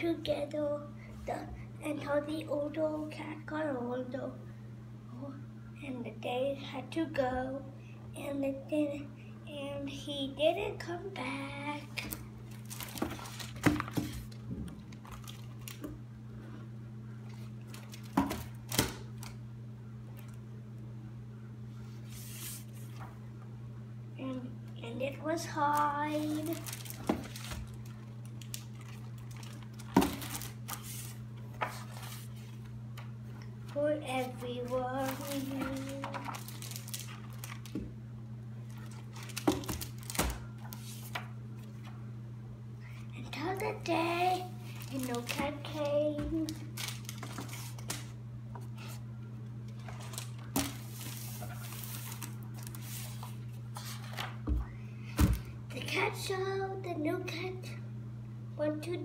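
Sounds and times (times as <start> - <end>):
steady low hum: 0.0 - 59.0
book pages rustling: 12.0 - 14.4, 21.9 - 23.2, 25.6 - 32.7, 34.1 - 37.8, 38.7 - 41.9, 44.7 - 49.0, 49.7 - 54.4.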